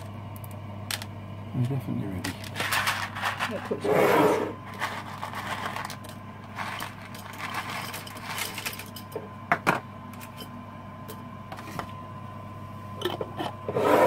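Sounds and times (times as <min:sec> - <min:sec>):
steady low hum: 0:00.0 - 0:14.0
dried mushrooms rustling into jar: 0:04.6 - 0:09.1.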